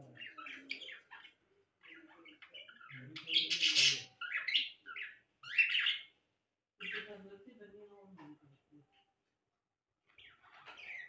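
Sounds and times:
parrots chirping and squawking: 0.0s - 6.2s, 6.8s - 7.2s, 10.0s - 11.0s.

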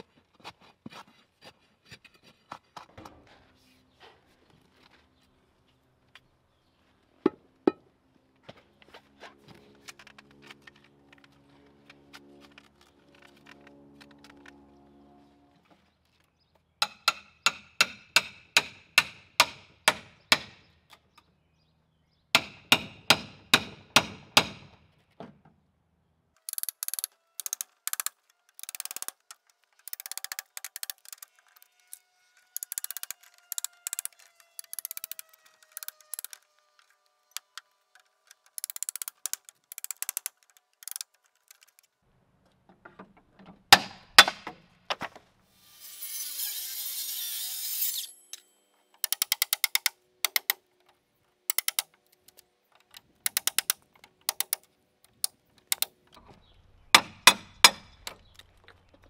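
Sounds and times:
hammer driving a nail: 16.8s - 20.6s, 22.4s - 24.7s, 43.7s - 44.6s, 57.0s - 57.9s.

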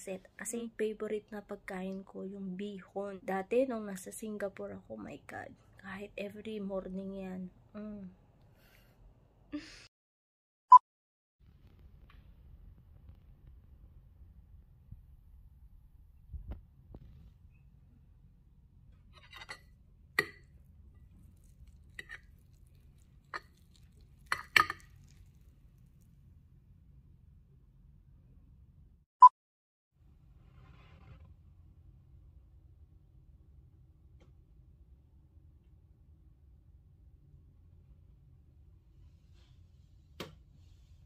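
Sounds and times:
metal fork clinking on plate: 24.2s - 24.9s.

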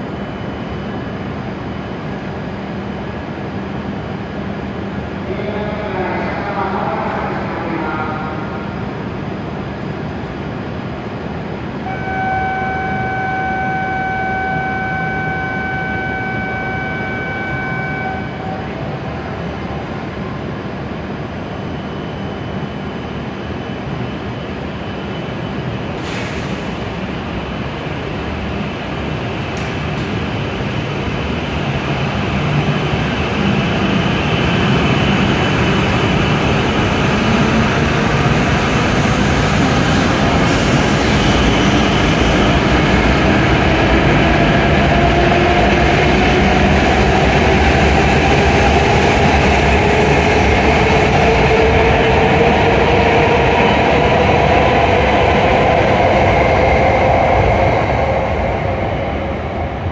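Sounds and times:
train cars rumbling past: 25.3s - 59.9s.

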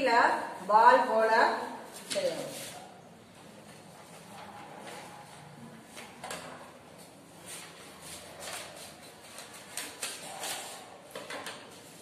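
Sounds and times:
paper rustling and crinkling: 7.5s - 12.0s.

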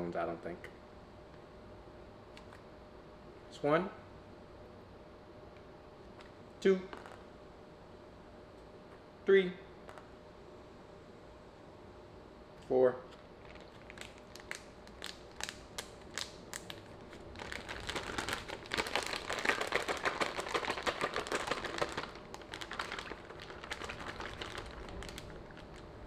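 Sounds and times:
plastic bag crinkling: 13.4s - 26.0s.

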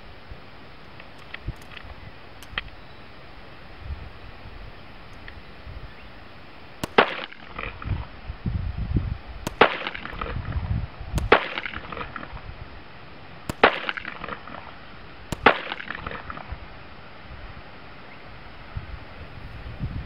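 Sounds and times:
pistol shots: 6.8s - 8.1s, 9.4s - 10.4s, 11.2s - 12.4s, 13.4s - 16.5s.

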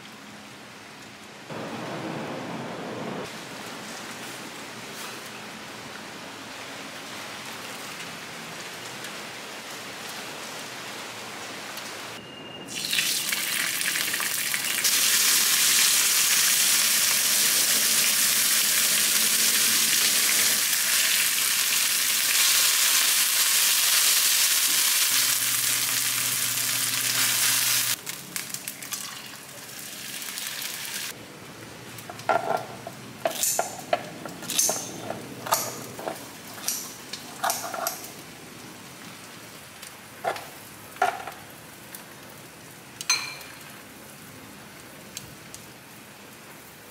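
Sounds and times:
meat sizzling in frying pan: 12.7s - 31.2s.

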